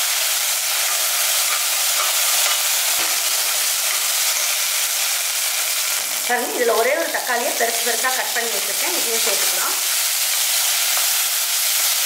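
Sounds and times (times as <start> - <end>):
food sizzling in hot oil: 0.0 - 12.0
metal spoon scraping a pan: 0.7 - 5.0.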